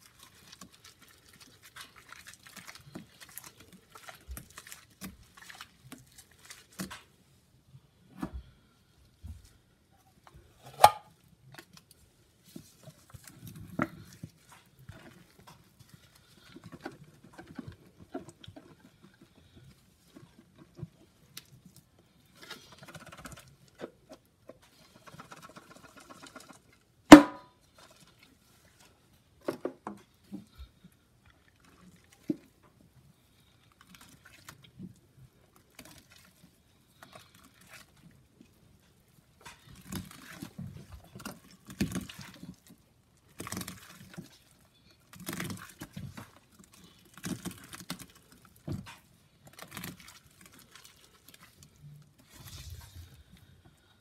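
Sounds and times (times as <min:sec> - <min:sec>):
wet paste squelching: 0:00.0 - 0:07.4, 0:11.5 - 0:25.0, 0:31.3 - 0:53.5.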